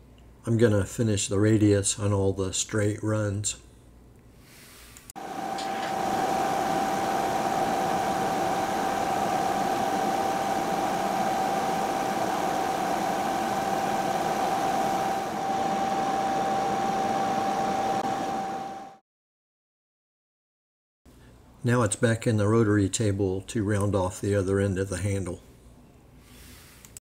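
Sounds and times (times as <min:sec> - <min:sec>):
machining noise: 0:05.2 - 0:19.0
milling machine whine: 0:05.2 - 0:19.0.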